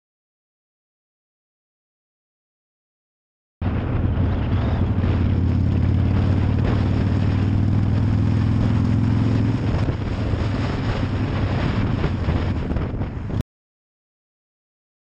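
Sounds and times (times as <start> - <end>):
motorcycle engine running: 3.6 - 13.4
wind noise: 3.6 - 13.4.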